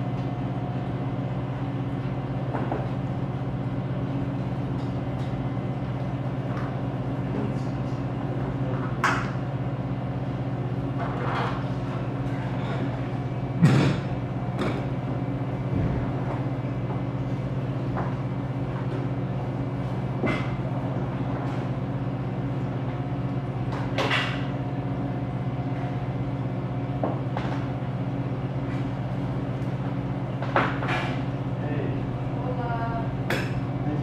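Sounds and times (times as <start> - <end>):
low machine hum: 0.0 - 34.0.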